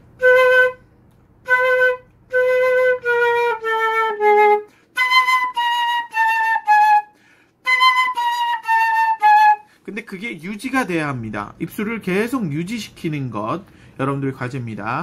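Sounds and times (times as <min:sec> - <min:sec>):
flute notes: 0:00.0 - 0:09.8.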